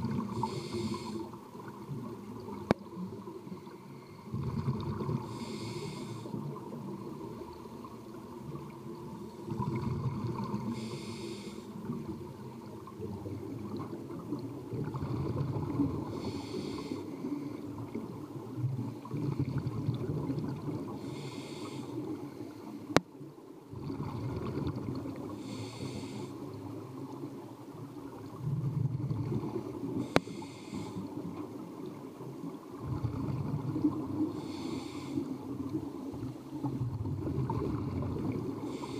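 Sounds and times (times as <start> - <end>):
bubbles rumbling and gurgling: 0.0 - 5.7, 6.4 - 10.8, 11.8 - 21.3, 22.0 - 25.6, 26.4 - 34.6, 35.3 - 38.9
regulator hissing inhale: 0.2 - 1.4, 5.2 - 6.5, 10.6 - 12.0, 16.0 - 17.6, 20.9 - 22.7, 25.3 - 26.5, 30.0 - 31.2, 34.3 - 35.5, 38.6 - 38.9.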